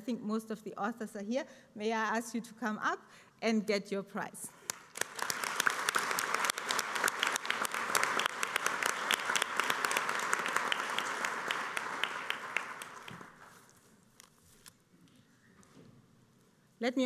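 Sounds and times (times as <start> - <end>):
audience applauding: 4.7 - 13.6.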